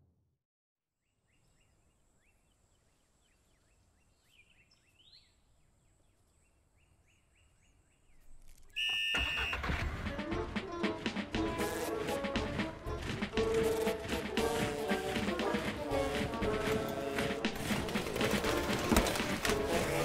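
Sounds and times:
short falling chirps: 8.7 - 9.7.

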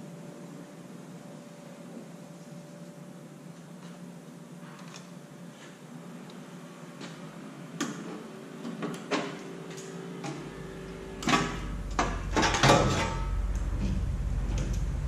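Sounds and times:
low steady hum: 0.0 - 15.0
sheet metal clanks and scrapes: 11.2 - 14.0.

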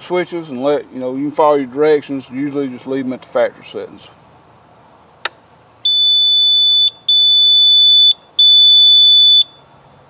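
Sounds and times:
long high beeps: 5.8 - 9.7.

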